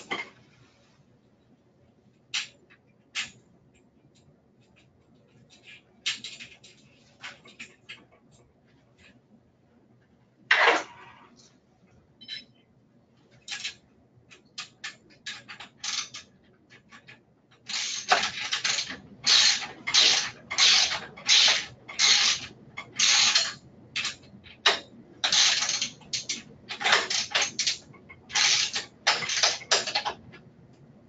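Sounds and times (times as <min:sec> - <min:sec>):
ratchet wrench ratcheting: 0:17.7 - 0:30.0.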